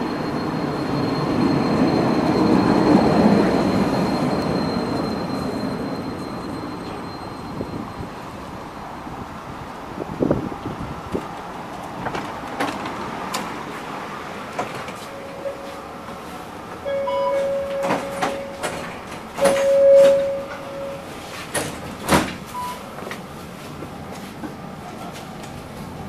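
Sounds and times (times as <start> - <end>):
sliding doors clattering: 11.1 - 13.8, 14.4 - 15.7, 16.8 - 23.2
door warning beeps: 15.1 - 15.9, 16.9 - 21.2, 22.5 - 22.8.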